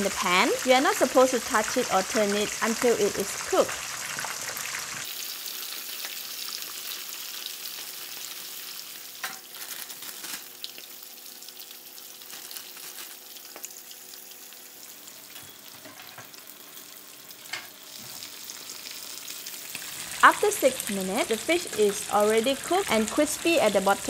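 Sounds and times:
oil bubbling hiss: 0.1 - 9.3, 16.5 - 24.0.

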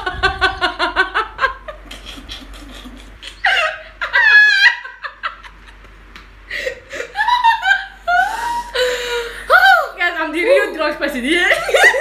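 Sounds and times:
women laughing: 0.0 - 9.5, 11.5 - 12.0.

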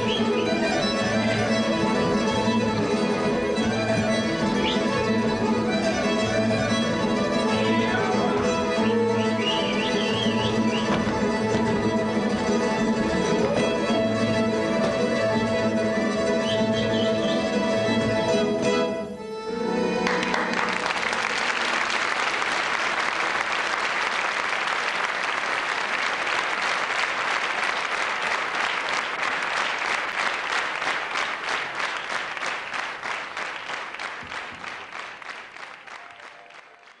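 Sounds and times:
audience clapping in rhythm: 0.0 - 15.8, 19.8 - 37.0.

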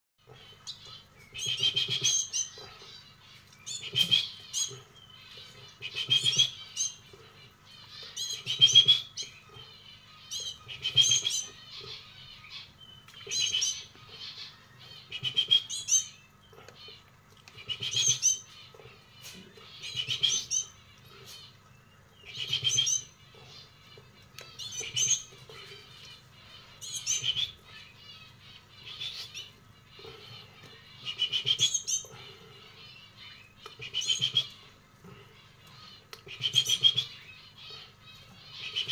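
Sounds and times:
young bird chirping rapidly: 0.6 - 3.0, 3.6 - 7.1, 7.8 - 16.2, 22.2 - 34.7, 35.7 - 38.9.

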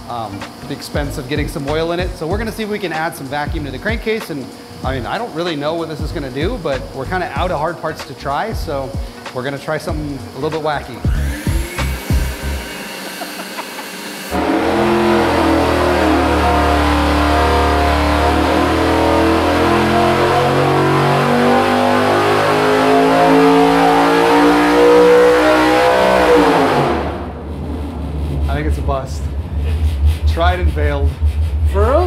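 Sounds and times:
engine revving at full throttle: 11.1 - 28.7.

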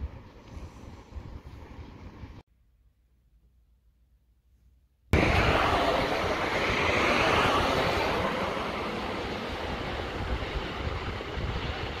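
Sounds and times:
steady rushing noise: 5.1 - 12.0
low rumble: 5.2 - 12.0.

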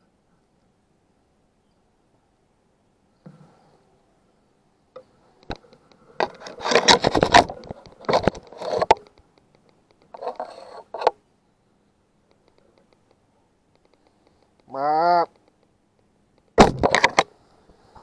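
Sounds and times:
scraping and rustling handling noise: 5.0 - 11.2
sharp click: 12.3 - 14.7, 15.3 - 17.3.

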